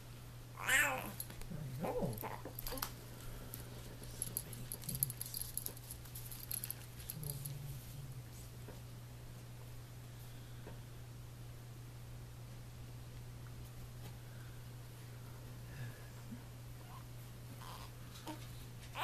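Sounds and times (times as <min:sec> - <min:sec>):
low steady hum: 0:00.0 - 0:19.0
baby cooing and squealing: 0:00.6 - 0:01.2
hanging toys clinking: 0:04.1 - 0:07.6.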